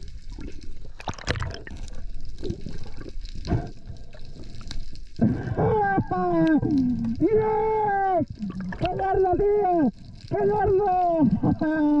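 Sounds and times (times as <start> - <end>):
water sloshing and crackling: 0.0 - 12.0.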